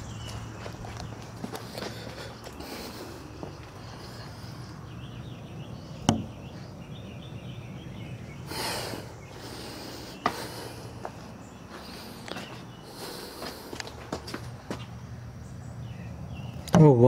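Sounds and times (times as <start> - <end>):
sharp knocks: 6.1 - 6.4.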